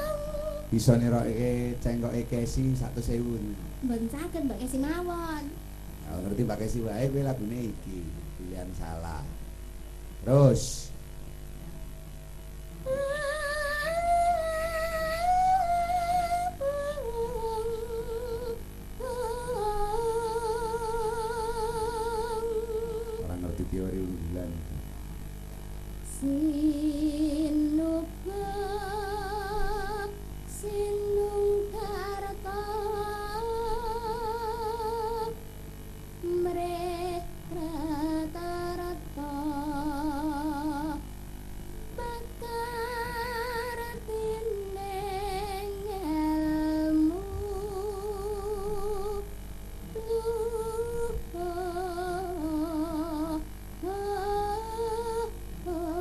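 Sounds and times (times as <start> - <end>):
woman singing into a microphone: 0.0 - 0.7, 12.8 - 23.2, 26.1 - 35.4, 36.2 - 41.0, 42.0 - 56.0.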